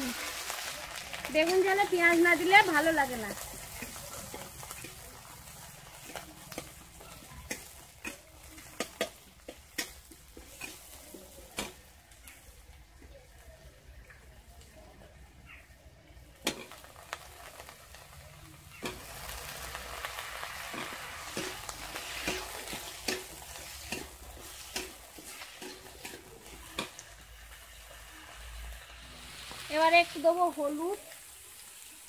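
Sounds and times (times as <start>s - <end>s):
vegetables sizzling in hot oil: 0.0s - 32.0s
metal spatula scraping pan: 20.6s - 27.0s.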